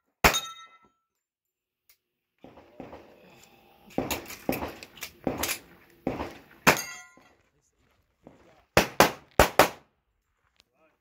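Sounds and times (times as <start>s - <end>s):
pistol shots: 4.0s - 7.0s, 8.8s - 9.9s
steel target ringing: 6.7s - 7.2s.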